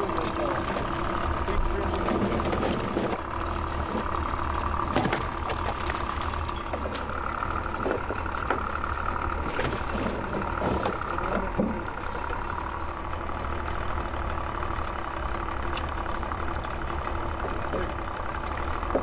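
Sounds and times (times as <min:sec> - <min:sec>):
outboard motor idling: 0:00.0 - 0:19.0.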